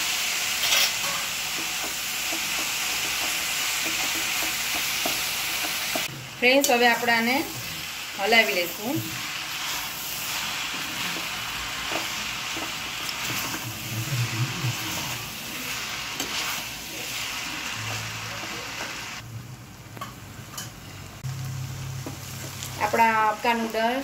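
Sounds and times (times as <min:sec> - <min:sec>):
noodles sizzling in a pan: 0:00.0 - 0:19.2, 0:21.2 - 0:24.0
metal utensil scraping pan: 0:00.5 - 0:07.7, 0:08.5 - 0:19.0.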